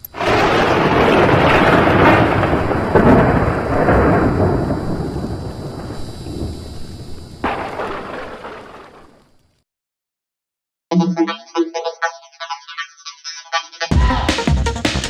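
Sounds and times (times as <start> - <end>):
thunder-like crackling rumble: 0.1 - 9.6.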